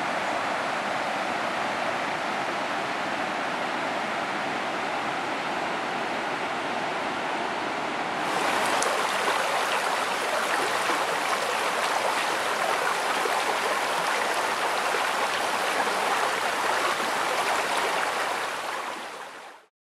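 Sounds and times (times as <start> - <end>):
stream rushing over stones: 8.2 - 19.7.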